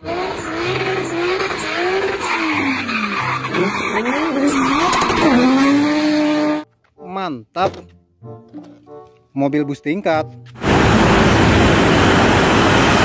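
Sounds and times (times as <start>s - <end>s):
car engine revving: 0.0s - 6.6s, 10.6s - 13.0s
tyres skidding and squealing: 0.0s - 6.6s.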